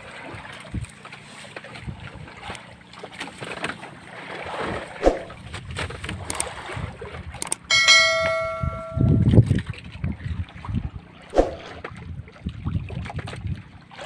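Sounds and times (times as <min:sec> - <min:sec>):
wind: 0:00.0 - 0:14.0
sea noise: 0:04.0 - 0:05.5, 0:06.3 - 0:09.4
bright bell chime: 0:07.7 - 0:09.3.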